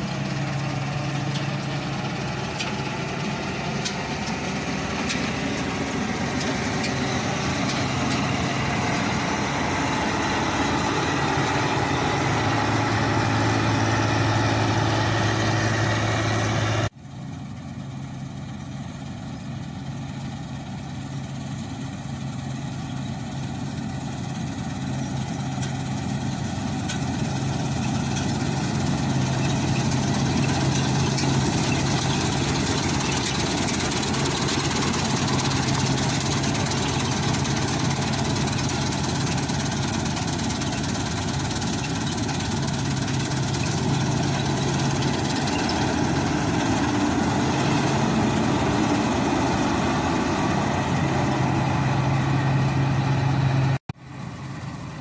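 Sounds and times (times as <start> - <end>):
combine harvester running: 0.0 - 55.0.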